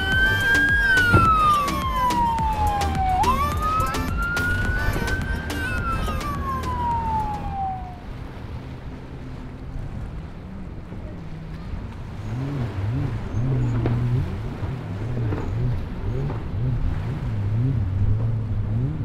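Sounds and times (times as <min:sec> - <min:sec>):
siren wailing: 0:00.0 - 0:08.2
boat engine rumble: 0:00.0 - 0:19.0.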